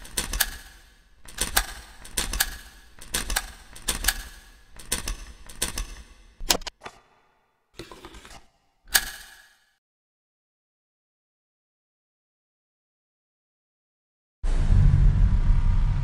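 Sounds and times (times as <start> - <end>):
clicks: 0.0 - 7.0.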